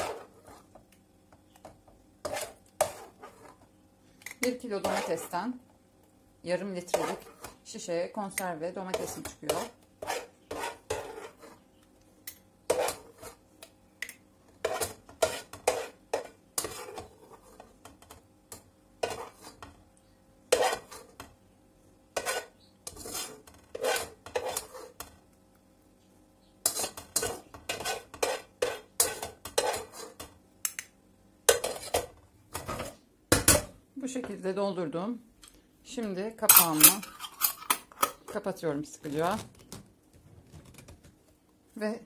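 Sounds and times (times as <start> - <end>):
metal spoon scraping pot: 0.0 - 0.7, 2.2 - 3.6, 4.3 - 5.4, 6.8 - 7.6, 8.4 - 11.6, 12.7 - 13.4, 14.6 - 17.7, 19.0 - 19.7, 20.5 - 21.2, 22.2 - 25.0, 26.6 - 30.3, 31.5 - 33.0, 36.5 - 38.4.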